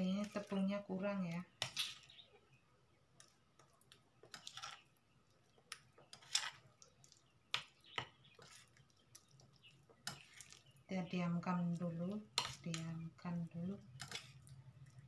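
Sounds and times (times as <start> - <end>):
spoon scraping ceramic bowl: 1.6 - 2.2, 4.3 - 4.9, 6.1 - 6.7, 10.0 - 10.6, 12.3 - 12.8, 13.9 - 14.6.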